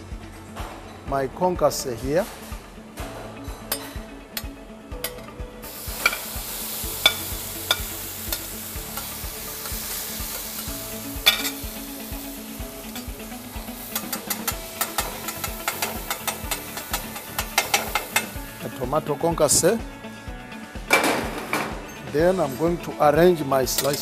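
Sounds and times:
food sizzling in frying pan: 0:05.6 - 0:18.7.

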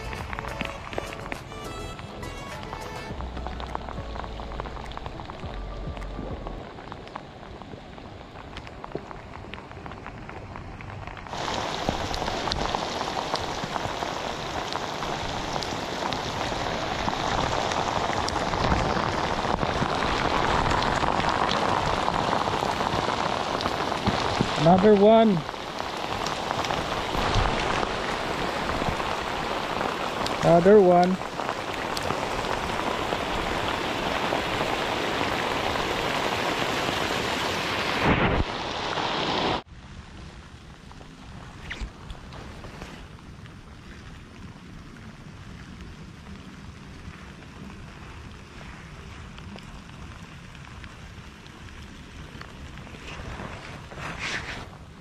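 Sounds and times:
heavy rain on water: 0:00.0 - 0:55.0
low rumble: 0:03.1 - 0:11.3.

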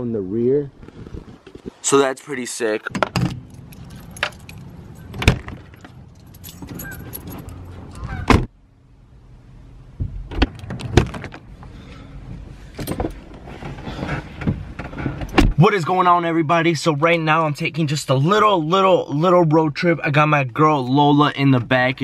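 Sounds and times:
keys jangling: 0:03.4 - 0:08.0.

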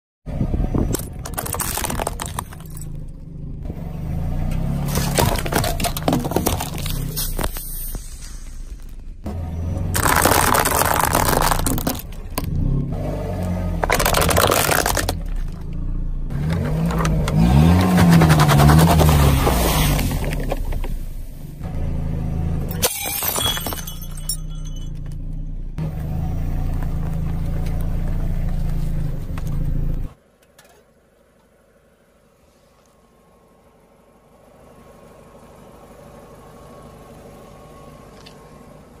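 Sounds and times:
car engine running low: 0:00.3 - 0:39.0
objects crushed under tyre: 0:00.9 - 0:03.0, 0:04.8 - 0:07.7, 0:09.8 - 0:12.6, 0:13.8 - 0:15.7, 0:22.8 - 0:25.2
can flattened under tyre: 0:01.0 - 0:02.8, 0:04.9 - 0:09.0, 0:09.9 - 0:12.5, 0:13.8 - 0:15.6
glass shards crunching: 0:01.3 - 0:03.0, 0:10.0 - 0:12.1, 0:22.8 - 0:25.0
glass shattering: 0:22.7 - 0:25.1.

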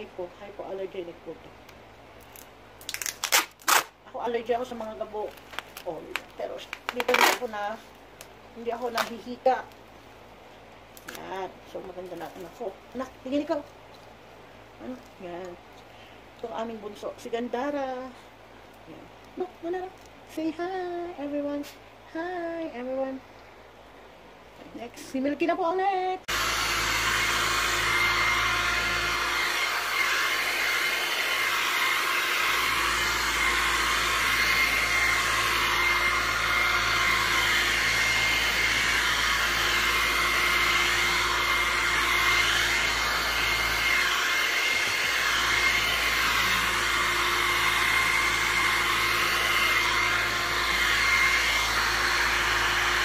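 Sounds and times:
hair dryer whining: 0:04.2 - 0:10.2, 0:11.0 - 0:13.7, 0:14.6 - 0:15.7, 0:16.3 - 0:19.9, 0:26.2 - 0:53.0.

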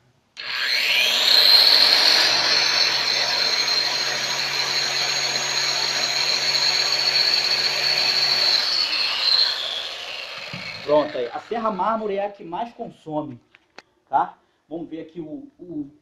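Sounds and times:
masonry saw motor whining: 0:00.4 - 0:11.9.

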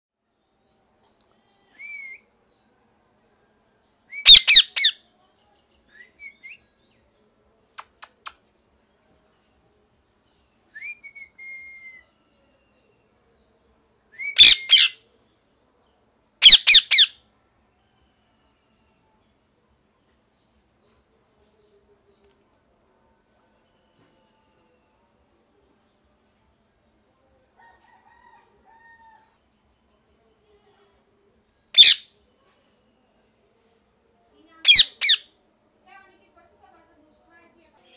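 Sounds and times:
loud parakeet calls: 0:04.2 - 0:05.0, 0:14.4 - 0:15.0, 0:16.4 - 0:17.2, 0:31.8 - 0:32.0, 0:34.6 - 0:35.2
parakeet whistling: 0:04.2 - 0:05.0, 0:14.3 - 0:15.0, 0:16.4 - 0:17.1, 0:31.8 - 0:32.0, 0:34.7 - 0:35.2.

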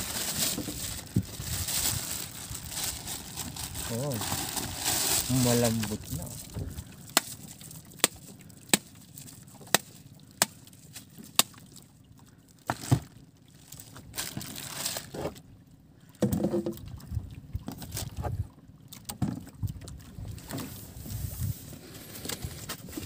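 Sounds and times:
rustling and scraping: 0:00.0 - 0:06.7, 0:20.4 - 0:23.0.

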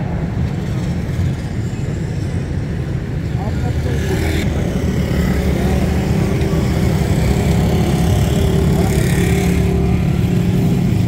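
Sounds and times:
road traffic: 0:00.0 - 0:11.0
vehicle engine running: 0:04.4 - 0:11.0.

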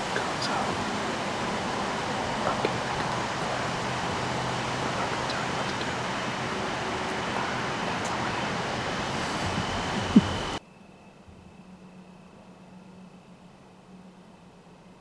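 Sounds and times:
wind rushing through trees: 0:00.0 - 0:10.8.

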